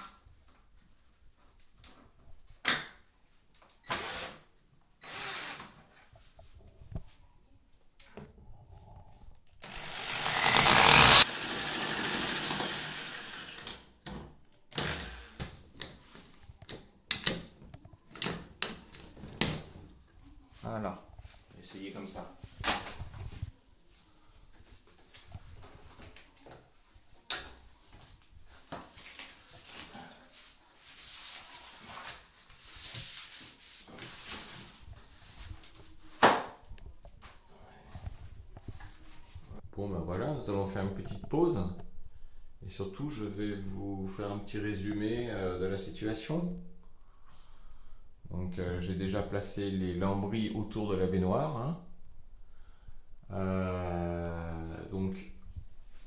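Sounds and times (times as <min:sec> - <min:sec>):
power drill cutting with hole saw: 0:03.9 - 0:04.4, 0:05.0 - 0:05.7, 0:09.6 - 0:13.7, 0:14.7 - 0:15.4
blade clicking and scraping: 0:09.8 - 0:11.3.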